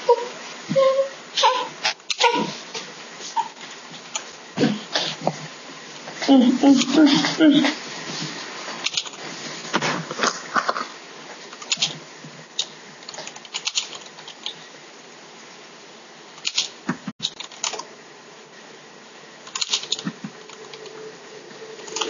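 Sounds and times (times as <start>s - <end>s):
keyboard keys clicking: 19.5s - 20.9s.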